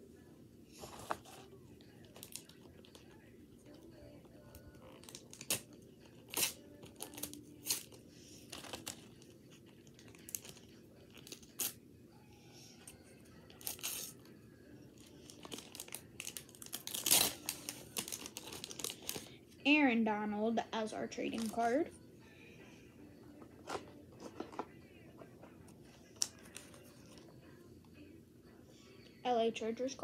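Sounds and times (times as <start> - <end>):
wrapper crinkling and tearing: 4.9 - 5.7, 6.3 - 7.9, 8.5 - 9.2, 13.5 - 14.2, 15.3 - 19.3.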